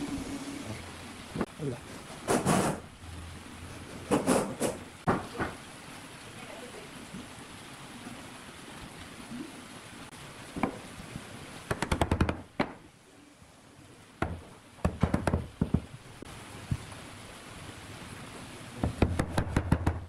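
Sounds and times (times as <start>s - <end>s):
sharp wooden knocks: 4.0s - 5.6s, 11.7s - 12.8s, 14.2s - 15.9s, 18.8s - 20.0s.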